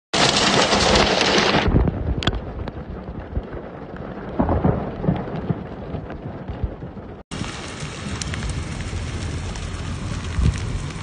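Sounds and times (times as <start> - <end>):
hailstones ticking: 0.2 - 11.0
heavy rain hissing: 7.3 - 11.0.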